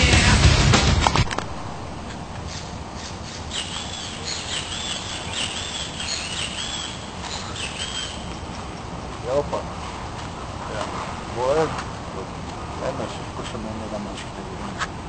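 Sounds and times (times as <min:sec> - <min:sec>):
low outdoor background noise: 0:00.0 - 0:15.0
bird chirping: 0:01.9 - 0:09.4.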